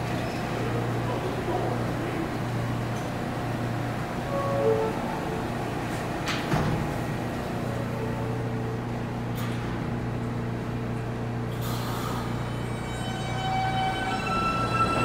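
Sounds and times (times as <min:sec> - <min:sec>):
subway car equipment hum: 0:00.0 - 0:15.0
sliding doors closing: 0:04.4 - 0:07.8.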